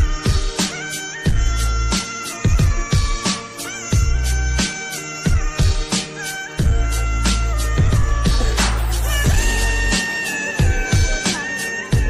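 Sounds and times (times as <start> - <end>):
crisp high percussion: 0.0 - 12.0
sliding lead melody: 0.0 - 12.0
deep kick drums: 6.6 - 9.8.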